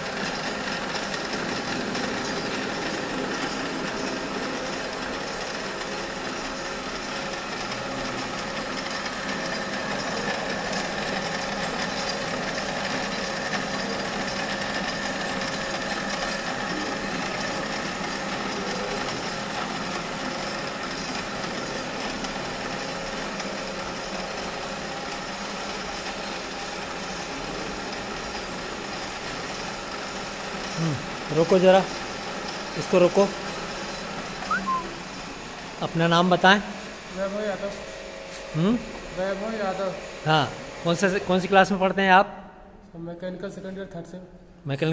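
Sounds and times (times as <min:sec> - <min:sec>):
tool cutting metal: 0:00.0 - 0:35.0
lathe humming and whining: 0:00.0 - 0:42.1.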